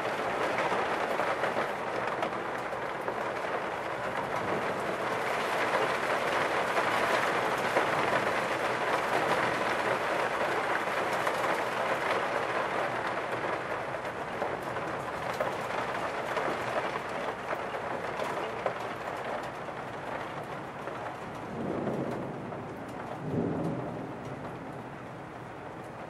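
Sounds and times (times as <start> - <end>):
rain falling: 0.0 - 26.0
thunder rumbling: 21.2 - 26.0.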